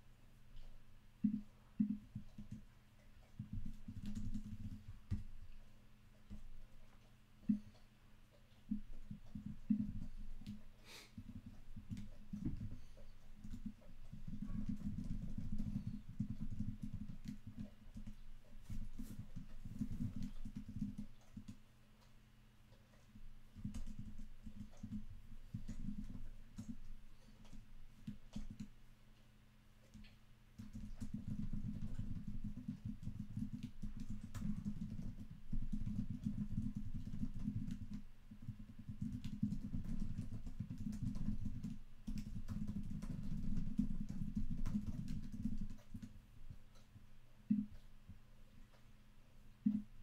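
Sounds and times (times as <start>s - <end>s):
keyboard typing: 1.2s - 2.6s, 3.3s - 5.2s, 11.2s - 21.6s, 23.5s - 28.7s, 29.9s - 46.9s.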